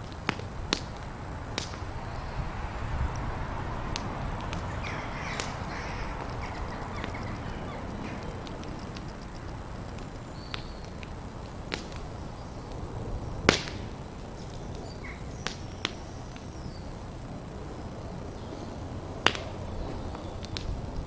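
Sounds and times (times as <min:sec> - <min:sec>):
sharp pops: 0:00.0 - 0:01.9, 0:03.9 - 0:12.8, 0:13.4 - 0:16.5, 0:19.2 - 0:19.6
fire crackling: 0:00.0 - 0:21.0
steady low rumble: 0:00.0 - 0:21.0.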